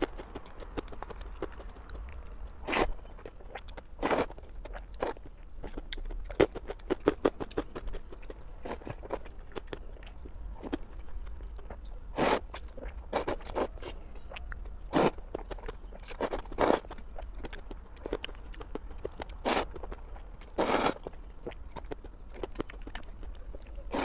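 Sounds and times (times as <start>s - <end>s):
wet chewing and lip clicks: 0.0s - 24.0s
noodle slurps: 12.2s - 12.5s, 14.9s - 15.2s, 19.4s - 19.8s, 20.5s - 21.0s.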